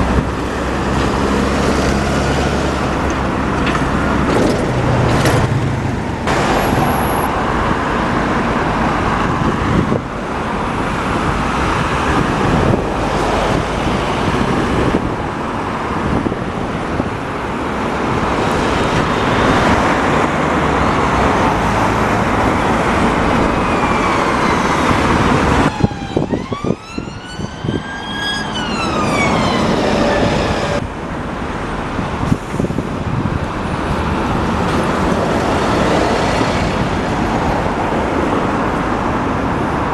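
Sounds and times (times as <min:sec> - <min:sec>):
road traffic rumble: 0:00.0 - 0:39.9
whining wail: 0:25.6 - 0:30.8.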